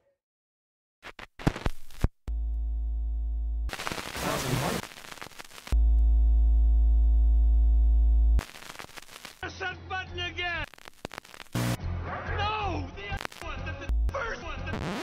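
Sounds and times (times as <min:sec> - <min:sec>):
low buzzing hum: 0:02.3 - 0:03.8, 0:05.8 - 0:08.4.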